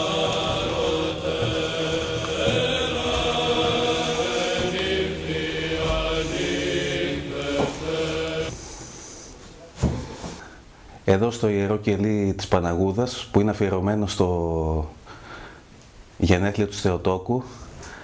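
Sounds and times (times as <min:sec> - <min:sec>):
steady low drone: 0:00.0 - 0:08.7
voices chanting long notes: 0:00.0 - 0:08.7.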